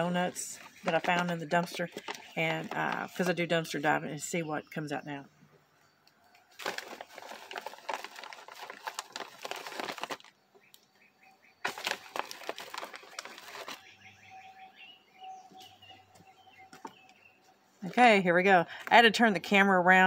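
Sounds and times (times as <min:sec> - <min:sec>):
dense crackling rustle: 0:06.5 - 0:10.3, 0:11.6 - 0:13.9
small bird chirping: 0:12.9 - 0:17.6.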